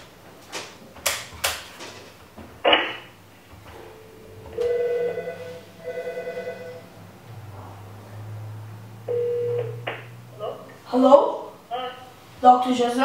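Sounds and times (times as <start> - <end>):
electronic telephone ringing: 3.9 - 7.0, 9.1 - 9.8
plain beep tone: 9.1 - 9.8.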